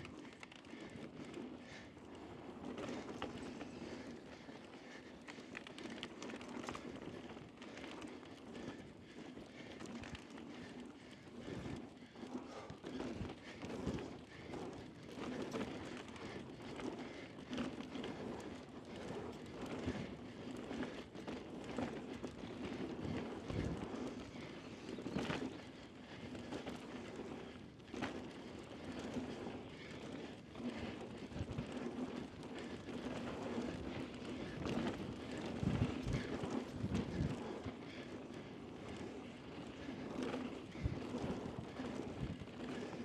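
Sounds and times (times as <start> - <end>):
bike tyres on dirt trail: 0.0 - 43.0.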